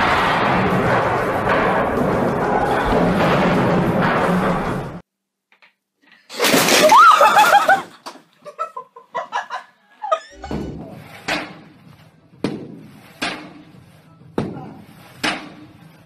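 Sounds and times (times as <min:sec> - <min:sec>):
person laughing: 0:07.0 - 0:10.3.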